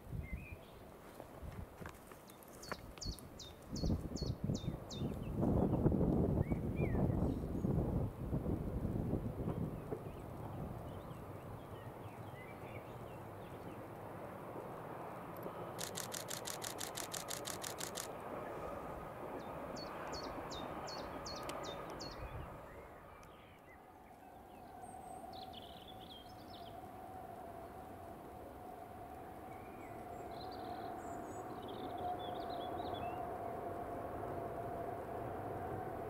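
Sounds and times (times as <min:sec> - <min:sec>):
train rumbling past: 0:03.4 - 0:36.0
rapid clicks: 0:15.8 - 0:18.2
birds chirping: 0:19.4 - 0:26.7.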